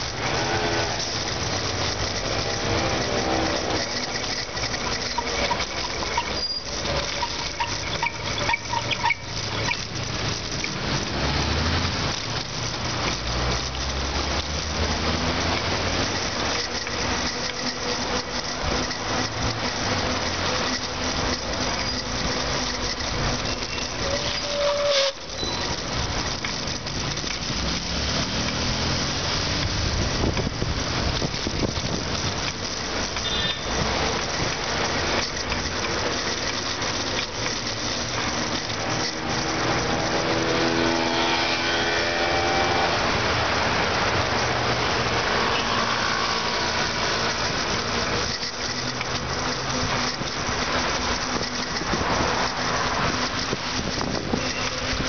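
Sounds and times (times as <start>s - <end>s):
road noise: 0.0s - 55.0s
vehicle engines passing: 0.0s - 55.0s
wind rush: 51.7s - 54.6s.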